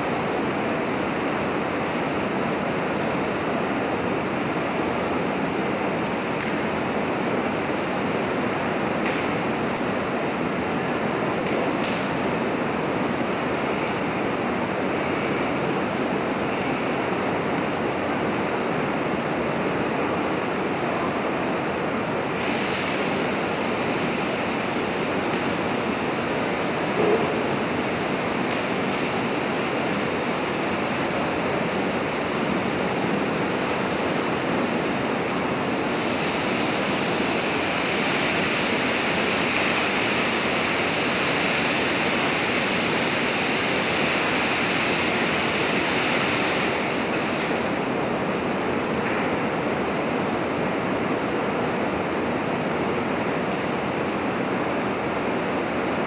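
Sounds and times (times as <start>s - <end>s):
roaring fire: 0.0s - 56.0s
spray burner hissing: 22.1s - 48.5s.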